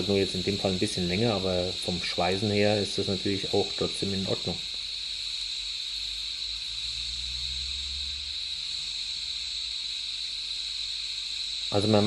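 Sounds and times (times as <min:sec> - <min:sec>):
shielding gas flowing: 0:00.0 - 0:12.0
welding arc hissing: 0:00.0 - 0:12.0.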